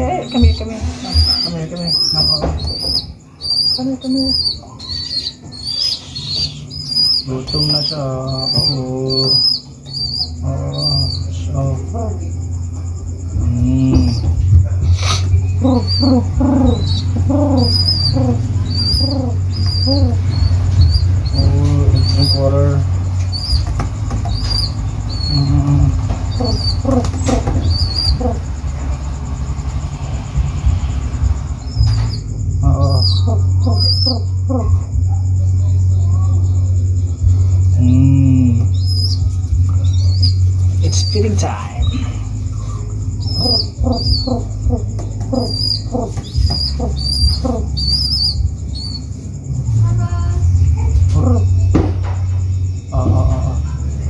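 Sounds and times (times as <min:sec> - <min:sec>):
baby pigeon peeping: 0:00.0 - 0:54.0
wing flapping: 0:13.5 - 0:34.3.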